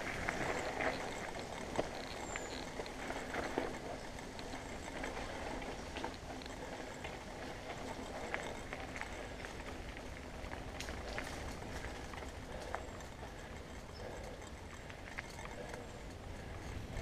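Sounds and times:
bike clicks and rattles: 0.0s - 17.0s
bike tyres crunching on dirt: 0.0s - 17.0s.

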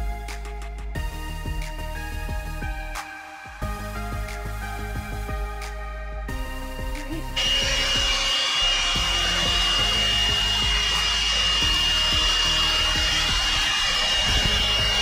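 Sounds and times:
handheld vacuum cleaner running: 7.4s - 15.0s.

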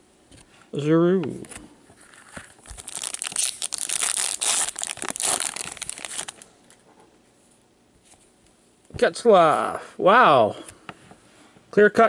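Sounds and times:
plastic wrapper crinkling and tearing: 2.5s - 6.5s.

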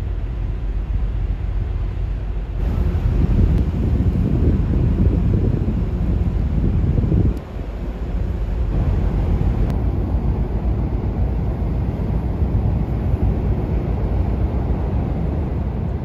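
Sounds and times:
ship diesel engines rumbling: 0.0s - 16.0s
wind on microphone: 0.0s - 16.0s.

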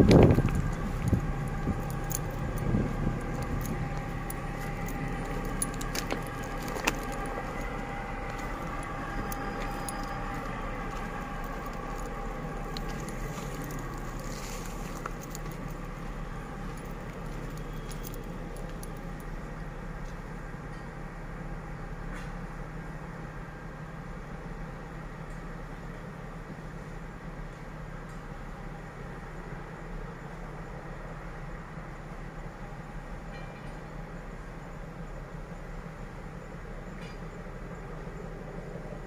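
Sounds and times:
loud low rumble: 0.0s - 20.0s
train wheels ringing on rails: 0.0s - 21.0s, 32.9s - 35.1s, 36.1s - 38.8s.

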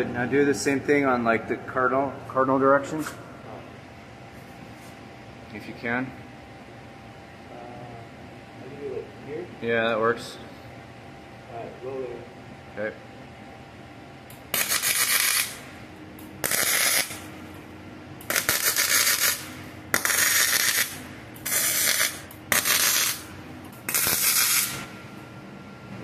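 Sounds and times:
welding arc crackling: 14.3s - 17.3s, 18.2s - 24.9s.

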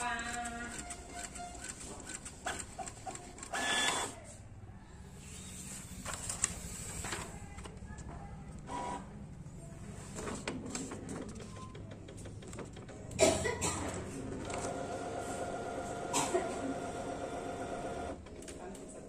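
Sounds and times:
inkjet printer whirring: 0.0s - 4.3s, 5.1s - 7.8s, 13.9s - 18.8s
loud noisy printer burst: 14.4s - 18.2s.

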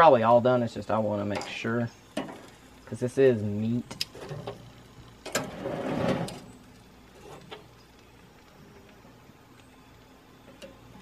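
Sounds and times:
scraping rustle on grill: 1.4s - 8.2s
meat clicking on grill grate: 3.6s - 5.6s.

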